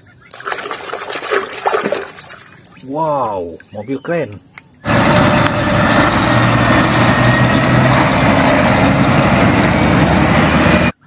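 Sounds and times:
truck diesel engine running: 4.8 - 11.0.

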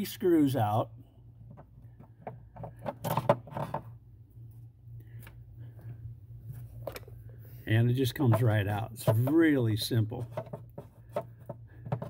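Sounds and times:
low steady hum: 0.0 - 12.0
handling clicks and knocks: 8.1 - 12.0.

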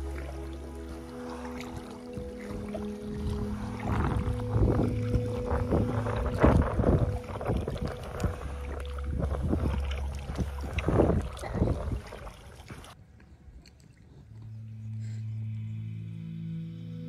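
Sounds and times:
paddle splashing in water: 0.0 - 13.0
wind on microphone: 0.0 - 13.0.

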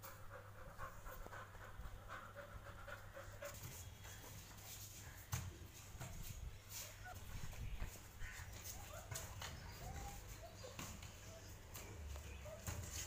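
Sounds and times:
dog panting: 0.0 - 4.6.

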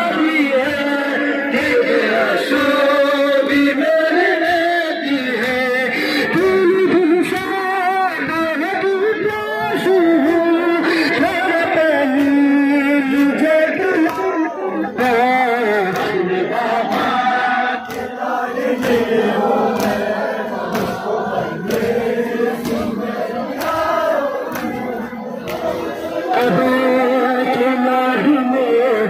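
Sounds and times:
men chanting a lament: 0.0 - 29.0
sharp rhythmic strikes: 0.0 - 29.0.

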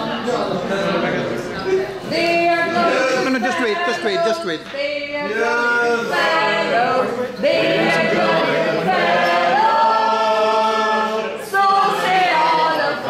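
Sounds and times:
voices singing long held notes: 5.2 - 13.0.

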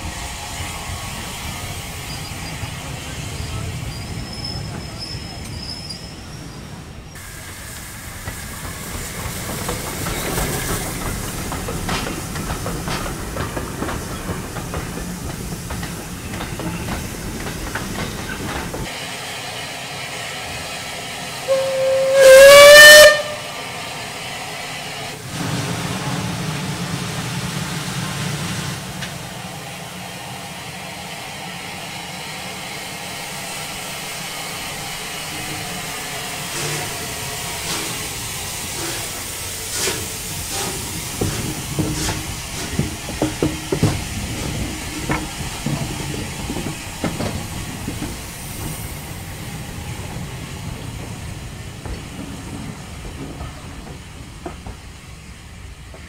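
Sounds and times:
steam hissing: 0.0 - 56.0
steam locomotive whistle: 21.4 - 23.6.

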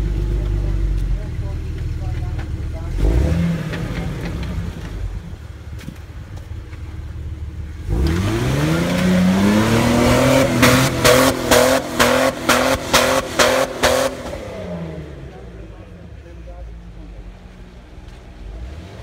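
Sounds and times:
car engine revving hard: 2.9 - 4.9, 7.8 - 15.6, 18.6 - 19.0.

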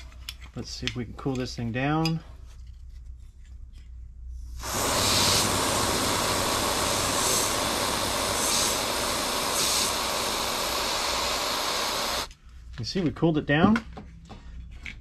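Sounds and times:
gas duster spraying hiss: 4.5 - 12.3.

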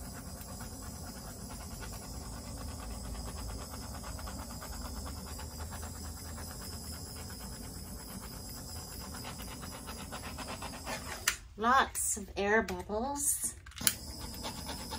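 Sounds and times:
torch flame hissing: 13.8 - 14.9.

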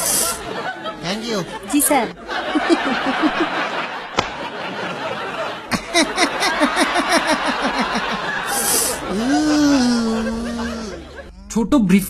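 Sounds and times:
man laughing hard: 5.7 - 11.3.

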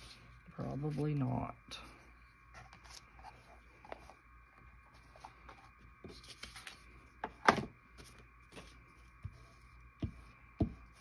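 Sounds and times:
paper rustling: 4.9 - 7.0.

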